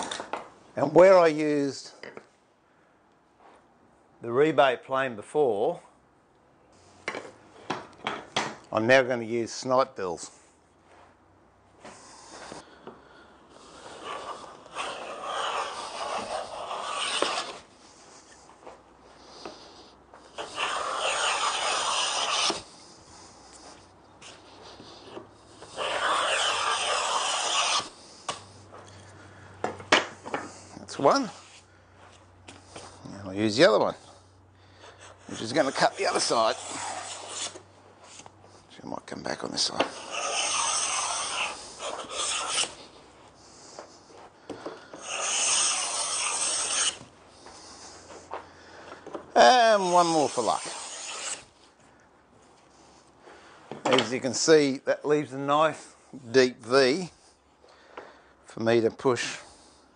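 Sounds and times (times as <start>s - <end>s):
wooden plane rasping along board: 13.8s - 17.6s, 20.4s - 22.6s, 25.6s - 27.9s, 36.0s - 37.6s, 39.8s - 42.8s, 44.9s - 47.0s, 49.8s - 51.4s.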